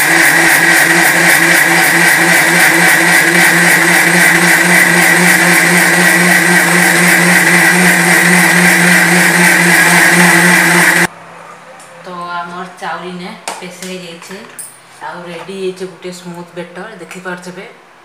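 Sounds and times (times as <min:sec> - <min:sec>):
mixer grinder running: 0:00.0 - 0:11.1.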